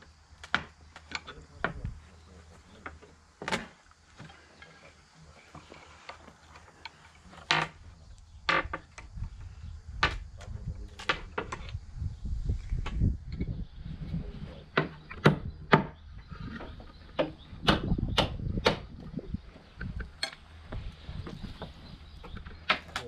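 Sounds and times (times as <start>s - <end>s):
hammer striking nails into wood: 17.2s - 18.9s.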